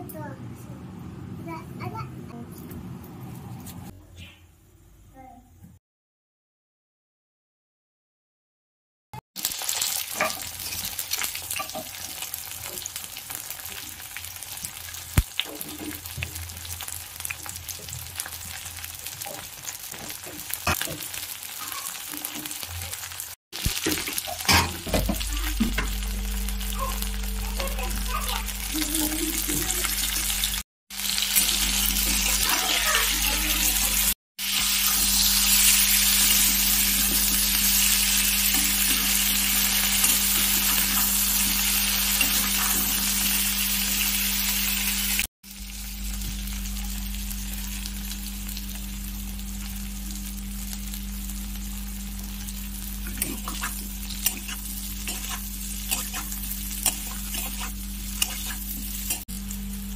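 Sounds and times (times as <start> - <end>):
food sizzling in oil: 9.4 - 59.9
low hum: 24.5 - 30.6
spatula scraping pan: 53.2 - 59.3.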